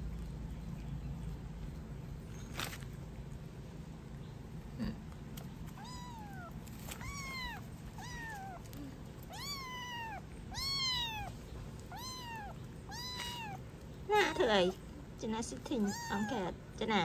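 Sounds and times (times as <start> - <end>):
kitten mewing: 5.7 - 13.6, 15.8 - 16.5.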